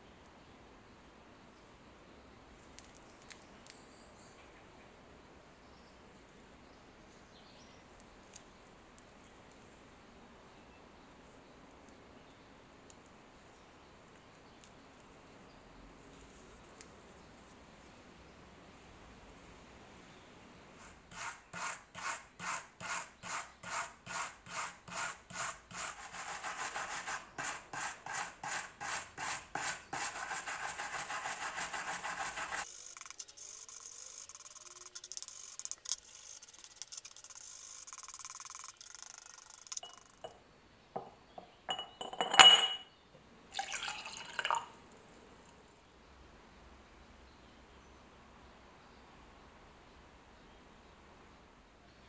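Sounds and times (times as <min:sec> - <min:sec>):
wire brush scrubbing metal: 0:20.8 - 0:39.8
ringing metallic clink: 0:41.7 - 0:42.9.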